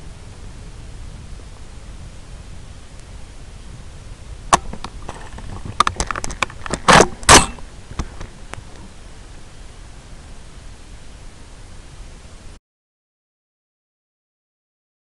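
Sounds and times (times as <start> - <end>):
steady hiss: 0.0 - 12.6
rifle handling clicks and knocks: 4.6 - 8.3.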